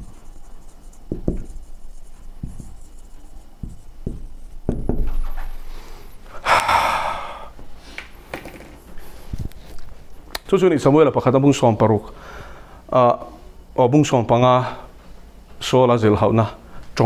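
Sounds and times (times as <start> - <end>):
man breathing heavily: 5.6 - 8.1.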